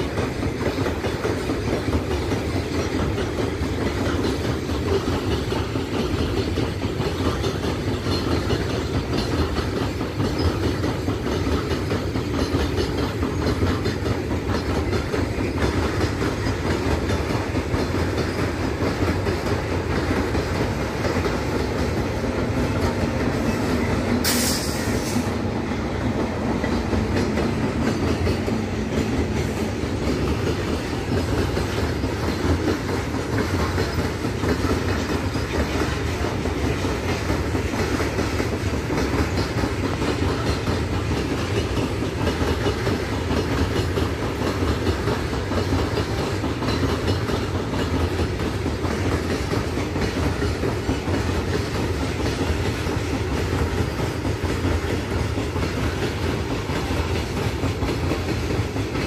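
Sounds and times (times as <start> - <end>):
electric locomotive hum: 0.0 - 59.0
wheels clattering over rail joints: 0.0 - 59.0
short hiss: 24.2 - 25.3.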